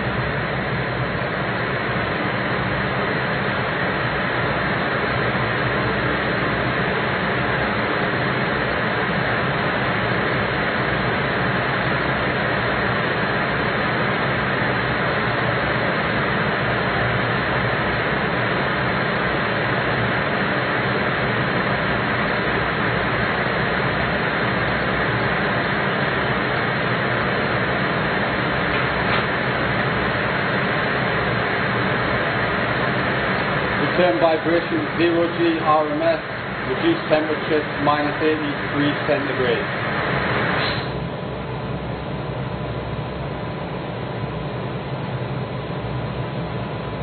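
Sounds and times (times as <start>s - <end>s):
steady mechanical roar: 0.0s - 47.0s.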